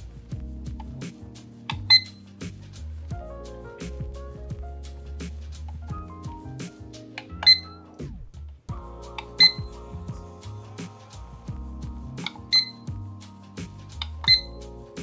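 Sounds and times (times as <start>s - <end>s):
upbeat background music: 0.0s - 15.0s
alarm clock beeps: 7.4s - 7.7s.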